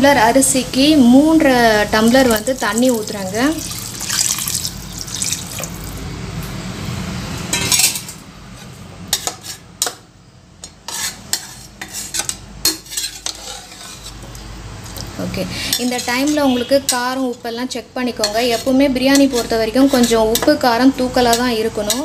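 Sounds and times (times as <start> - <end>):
water pouring into a pot: 2.6 - 6.0
metal spoon scraping a pot: 7.5 - 10.0, 10.6 - 14.4, 15.6 - 17.2, 18.2 - 20.6, 21.2 - 22.0.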